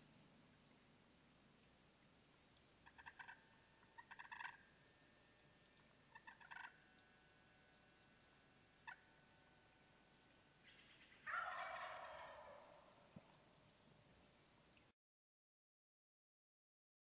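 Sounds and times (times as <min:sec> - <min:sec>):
turkey gobbling: 0:02.8 - 0:04.6, 0:06.1 - 0:06.8, 0:08.8 - 0:09.0, 0:10.6 - 0:13.0.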